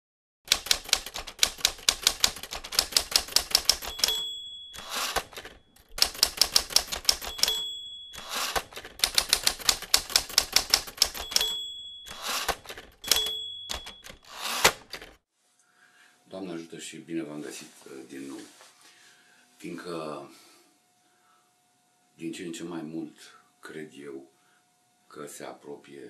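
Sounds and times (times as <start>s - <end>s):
typewriter carriage return: 0.5s - 15.2s
typewriter keystrokes: 0.5s - 15.2s
typewriter margin bell: 0.5s - 15.2s.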